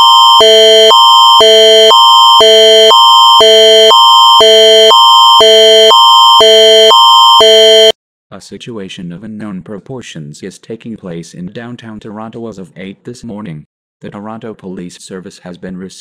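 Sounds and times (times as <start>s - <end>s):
emergency alert tone: 0.0s - 8.0s.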